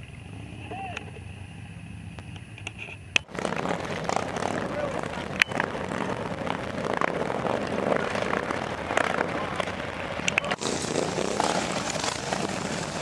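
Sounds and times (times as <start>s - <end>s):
motorcycles rumbling past: 3.2s - 13.0s.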